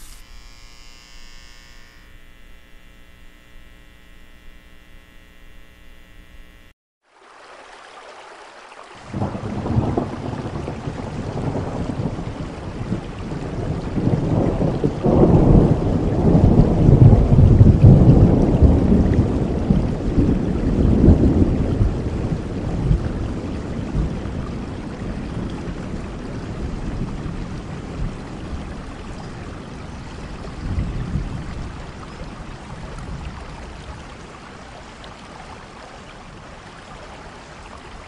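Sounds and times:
steady rain: 0:00.0 - 0:05.2, 0:05.9 - 0:38.0
steady humming tone: 0:00.0 - 0:06.8
rolling thunder: 0:09.1 - 0:28.6.

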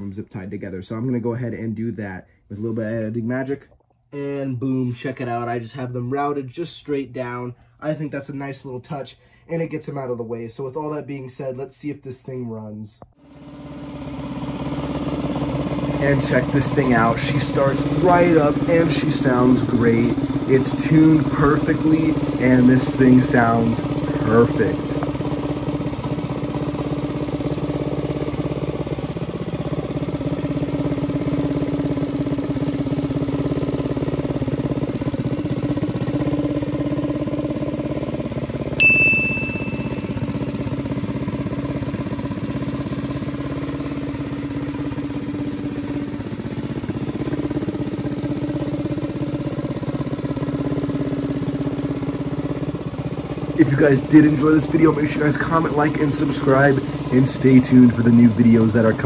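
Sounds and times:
small engine idling: 0:13.1 - 0:59.0
short ding: 0:38.8 - 0:40.5.

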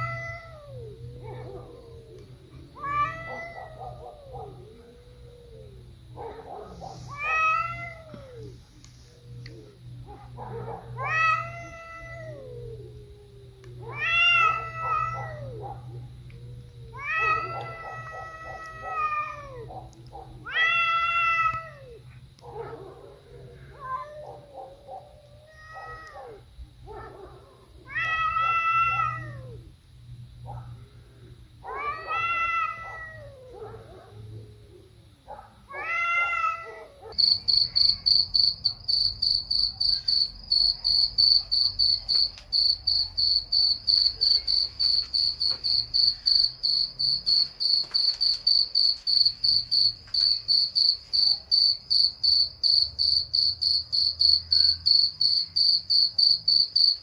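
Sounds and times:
cat yowling: 0:00.0 - 0:06.4, 0:07.1 - 0:08.6, 0:09.2 - 0:29.7, 0:31.6 - 0:34.9, 0:35.6 - 0:38.1
cricket chirping: 0:00.0 - 0:57.0.

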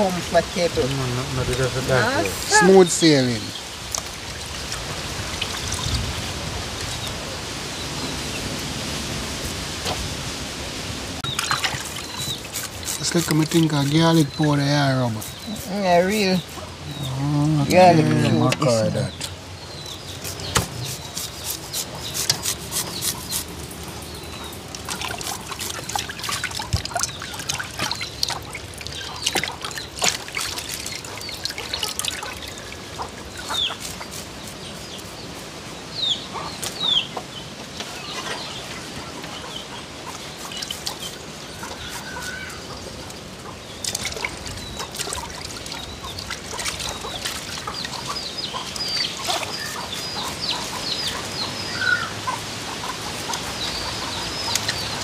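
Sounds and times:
water sloshing in pot: 0:11.2 - 0:15.5, 0:24.5 - 0:34.2
garlic scraping on metal grater: 0:20.2 - 0:23.6.

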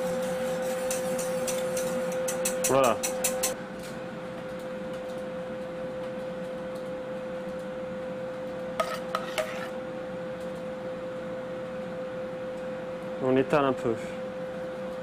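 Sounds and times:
steady tonal hum: 0:00.0 - 0:04.2, 0:08.6 - 0:10.3.

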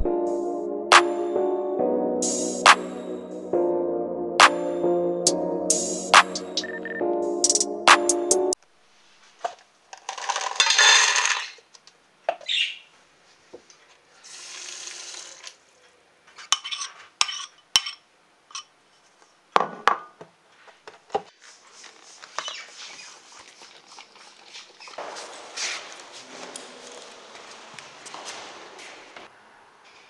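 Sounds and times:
spoon scraping metal bowl: 0:16.5 - 0:18.7
dog eating from bowl: 0:23.2 - 0:27.2.

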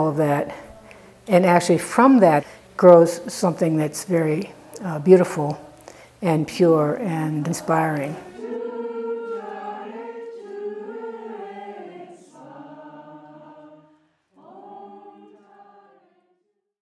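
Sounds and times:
group of voices singing: 0:03.6 - 0:16.4.

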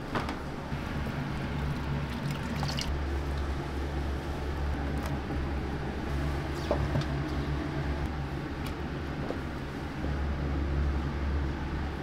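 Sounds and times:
kitchen machinery humming: 0:00.5 - 0:08.4.

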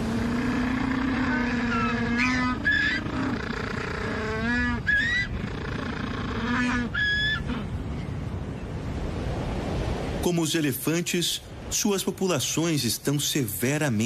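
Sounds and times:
penguins braying: 0:00.0 - 0:07.8.

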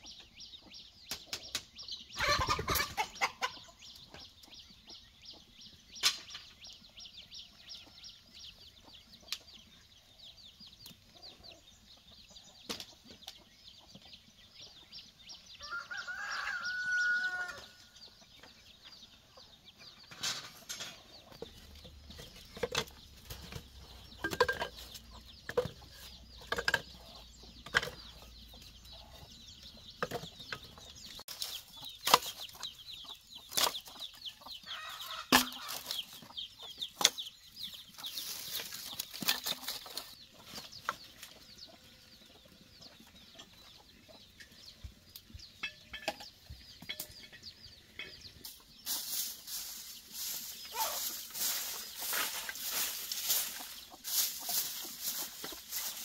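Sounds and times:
chickens clucking: 0:00.0 - 0:56.0
bamboo pieces knocking: 0:22.2 - 0:27.0
broom sweeping dirt ground: 0:37.9 - 0:40.9, 0:48.4 - 0:56.0.

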